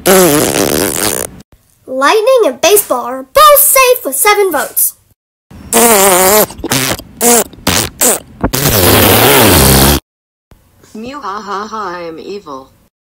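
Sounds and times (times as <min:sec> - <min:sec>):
comic fart noises: 0:00.0 - 0:01.4, 0:05.7 - 0:10.1.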